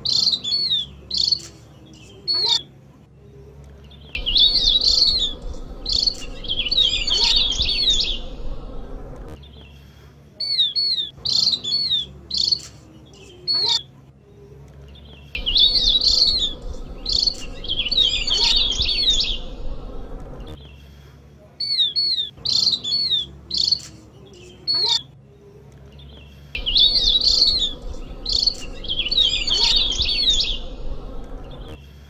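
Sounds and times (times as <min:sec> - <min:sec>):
short bird call phrases: 0:04.0 - 0:09.8, 0:15.3 - 0:20.9, 0:26.6 - 0:31.8
bird chattering twitter: 0:04.2 - 0:08.9, 0:15.4 - 0:20.6, 0:26.6 - 0:31.8.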